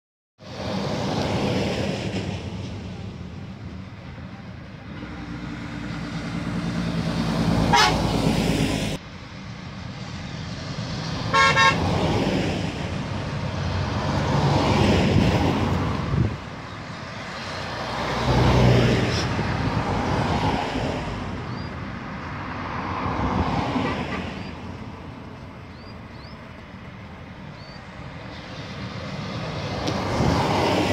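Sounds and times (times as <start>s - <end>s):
heavy trucks driving past: 0.4s - 30.9s
short horn toot: 7.7s - 8.0s.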